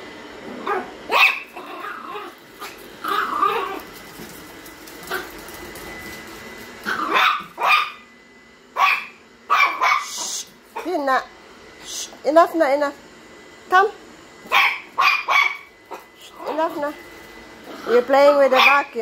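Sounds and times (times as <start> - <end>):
small dog barking: 0.6 - 3.8, 6.9 - 8.0, 8.8 - 11.0, 14.4 - 16.6, 18.6 - 18.9
robot vacuum whirring: 0.9 - 8.2.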